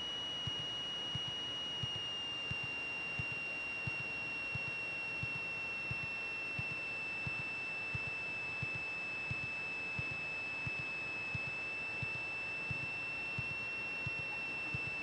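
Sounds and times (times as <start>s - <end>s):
high-pitched electrical whine: 0.0s - 15.0s
faint low ticks: 0.4s - 7.4s.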